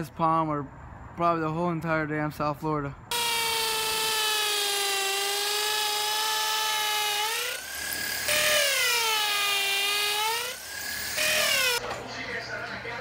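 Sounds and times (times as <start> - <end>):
electric drill boring into wood: 3.1 - 11.8.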